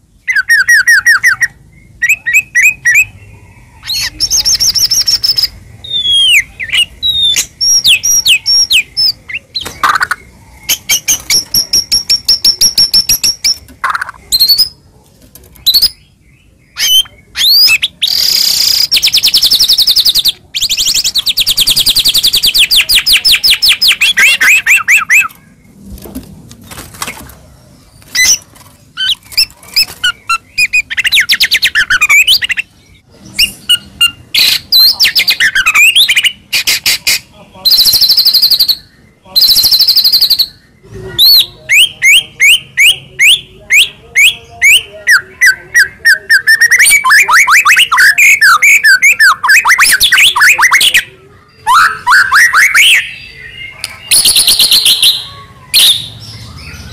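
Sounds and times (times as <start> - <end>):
songbird whistles and trills: 0.2 - 14.8, 16.7 - 25.4, 41.2 - 56.9.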